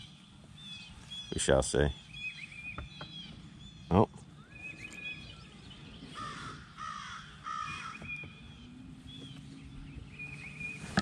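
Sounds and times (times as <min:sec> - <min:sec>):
small birds chirping: 0:00.0 - 0:11.0
crow cawing: 0:06.2 - 0:08.0.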